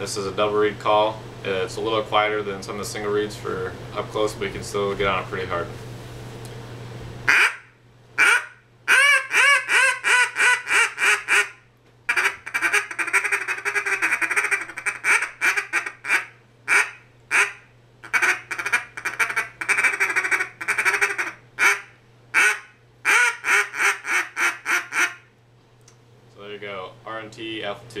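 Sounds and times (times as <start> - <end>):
duck call quacks: 7.3 - 25.3.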